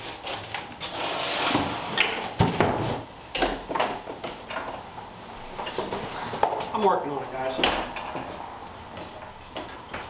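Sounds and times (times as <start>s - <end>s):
cardboard scraping and rustling: 0.0s - 3.1s.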